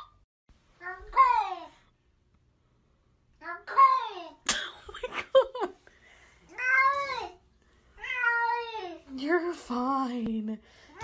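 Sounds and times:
cat meowing: 8.0s - 8.8s.

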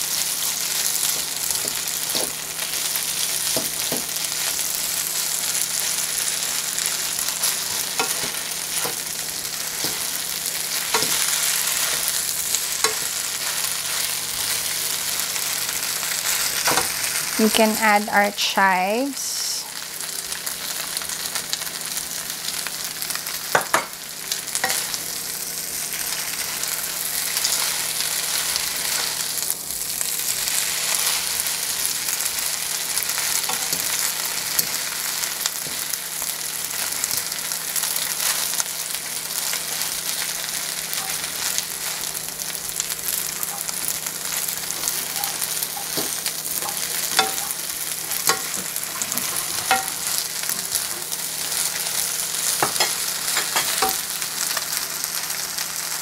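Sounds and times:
noodles sizzling in a wok: 0.0s - 56.0s
utensils clacking on a pan: 33.4s - 33.9s, 45.0s - 50.2s, 52.6s - 54.1s
utensils scraping a pan: 44.9s - 50.0s.

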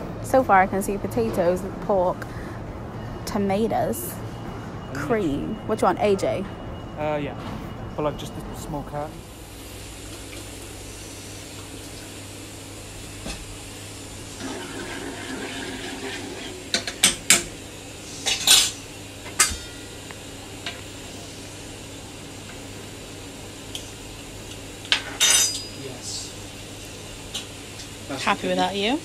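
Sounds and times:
steady low hum: 0.0s - 29.0s
pans and utensils clinking: 24.9s - 25.8s.

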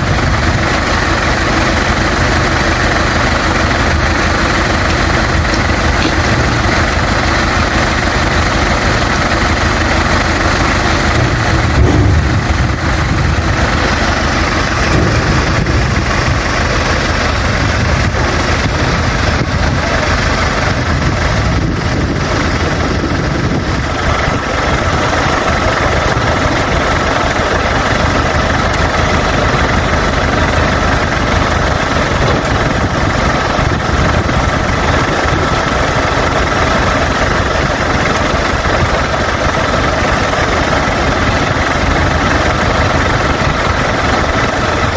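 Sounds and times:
truck engine idling: 0.0s - 44.9s
low thud: 11.1s - 18.2s.

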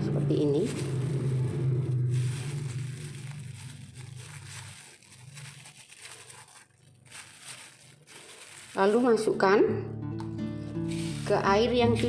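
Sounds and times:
low hum: 0.0s - 5.2s
hands rolling dough rustling: 0.3s - 9.4s, 10.6s - 12.0s.

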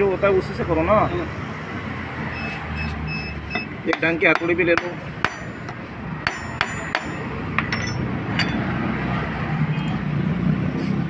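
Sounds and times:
hammer knocking on metal: 3.5s - 8.7s.

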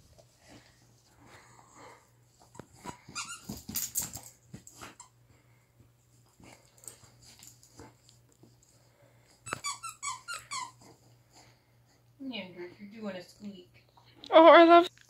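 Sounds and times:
squeaky toy squeaking: 9.5s - 10.8s.

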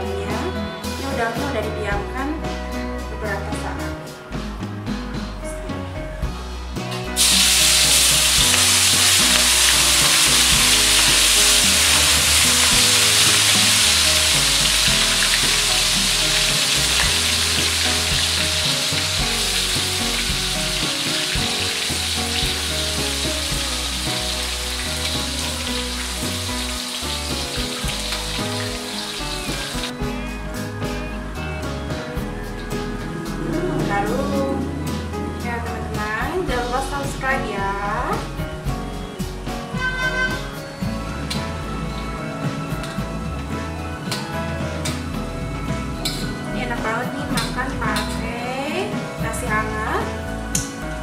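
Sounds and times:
shrimp sizzling in hot oil: 7.2s - 30.0s.

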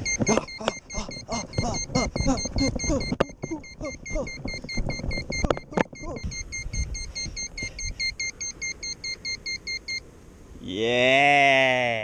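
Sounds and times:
short shrill beeps: 0.0s - 10.0s.

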